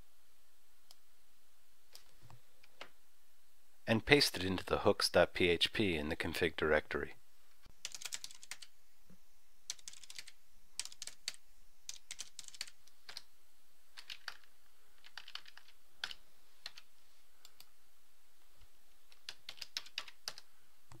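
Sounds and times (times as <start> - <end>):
keyboard typing: 7.8 - 8.7, 9.7 - 13.3, 14.0 - 17.7, 19.1 - 21.0.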